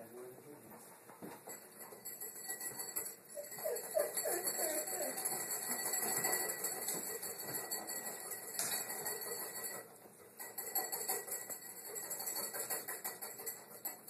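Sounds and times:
kibble clinking on ceramic plates: 1.4 - 14.0
puppies squeaking: 3.3 - 7.3.

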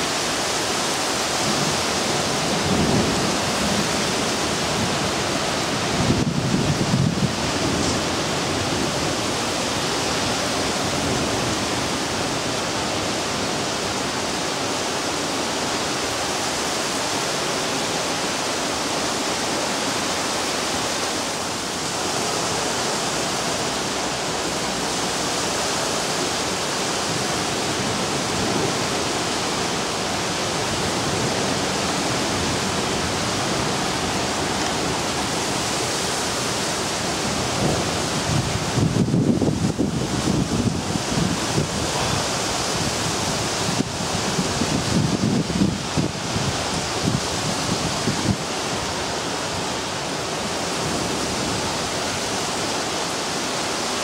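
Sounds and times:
heavy rain and hail pouring: 0.0 - 54.0.

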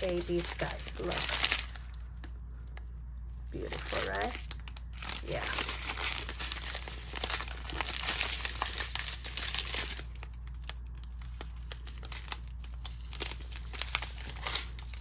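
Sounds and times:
plastic bags crinkling: 0.0 - 15.0.

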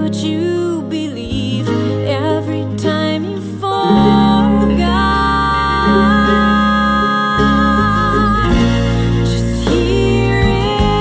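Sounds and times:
slow music with held notes: 0.0 - 11.0
steady low bass: 3.9 - 11.0.

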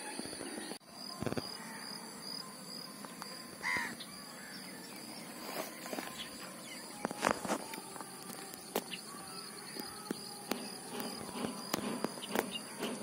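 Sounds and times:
high insect drone: 0.0 - 13.0
crow-like bird caw: 3.6 - 4.5.

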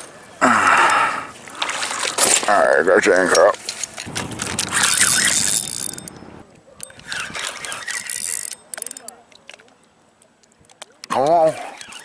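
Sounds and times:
fishing reel ratcheting clicks: 4.3 - 9.2.

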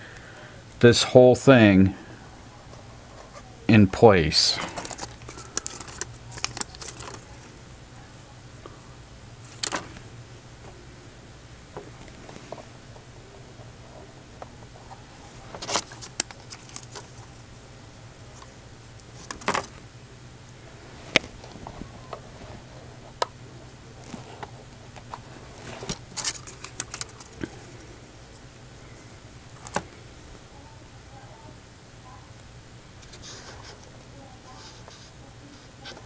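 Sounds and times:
steady low hum: 0.0 - 36.0
small clicks and crackles of handling: 4.6 - 7.5, 13.9 - 17.4, 18.3 - 19.8, 24.0 - 28.9.

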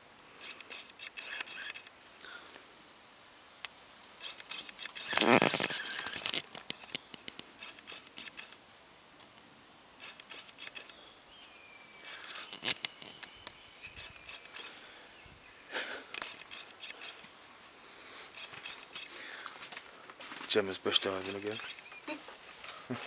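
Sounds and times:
footsteps rustling through leaves: 22.0 - 23.0.

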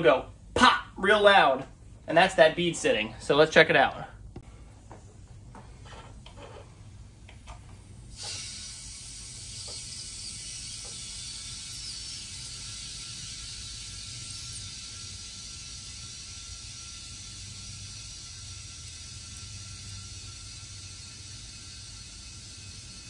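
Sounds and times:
compressed air hissing into tire: 7.8 - 23.0.

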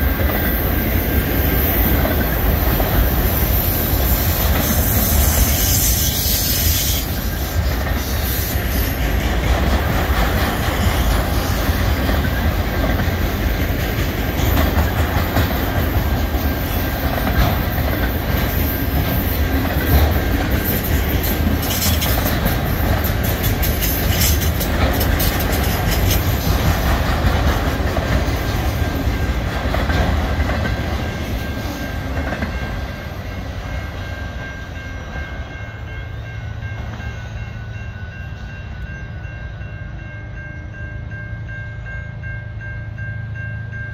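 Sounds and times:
train wheels rumbling on rails: 0.0 - 43.9
wheels clicking over rail joints: 6.7 - 32.9.

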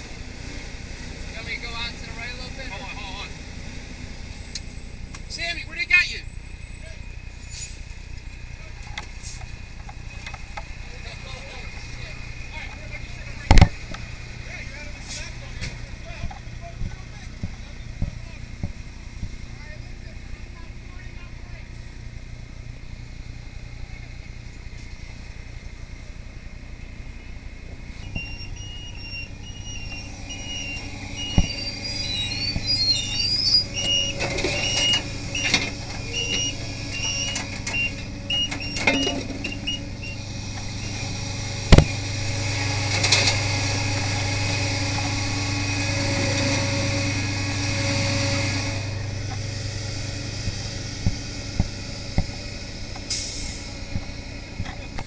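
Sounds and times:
fire truck engine humming: 0.0 - 55.0
repeating electronic beep: 28.0 - 40.2
knocks and clanks: 29.6 - 39.9.

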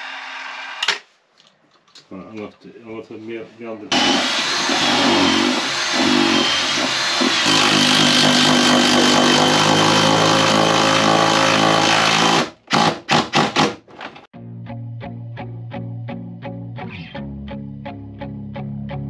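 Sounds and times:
cordless drill into wood: 3.9 - 13.8.

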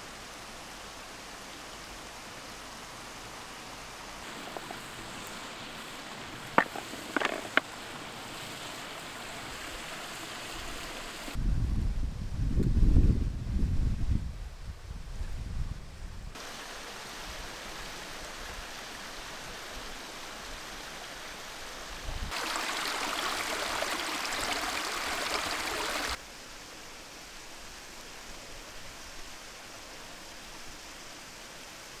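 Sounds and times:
stream rushing over rocks: 0.0 - 11.4, 16.4 - 26.2.

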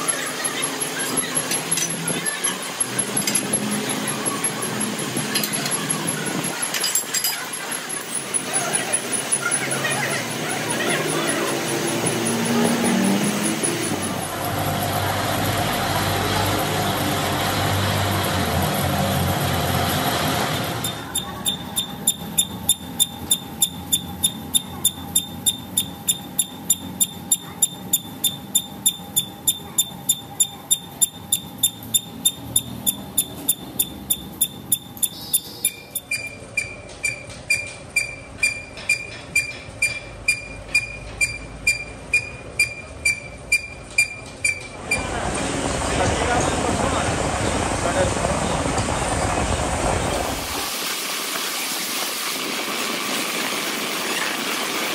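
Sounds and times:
metal lathe machining: 0.0 - 37.1
sharp ringing tick of cutting tool: 20.8 - 44.8.

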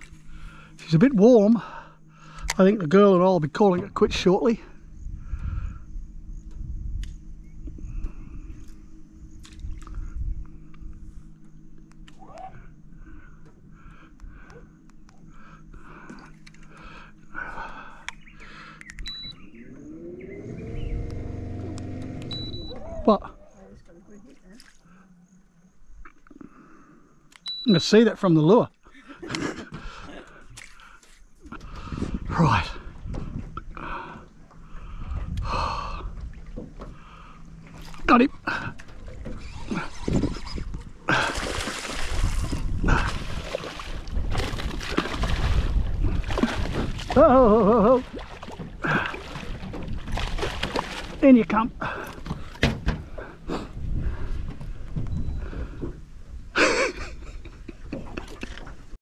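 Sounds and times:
electric trolling motor whine: 0.0 - 24.0, 31.2 - 47.2
sharp clicks: 18.8 - 19.4
short high beep: 19.1 - 19.4, 22.3 - 22.8
fish thrashing and splashing: 37.7 - 51.2.

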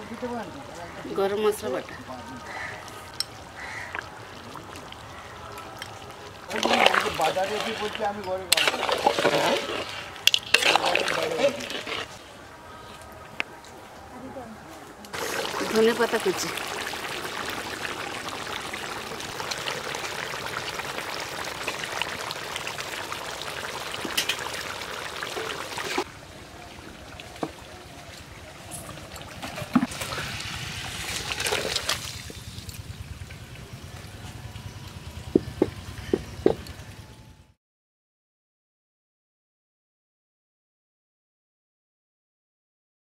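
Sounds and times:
curry bubbling in a pan: 6.4 - 12.2, 15.2 - 26.1.

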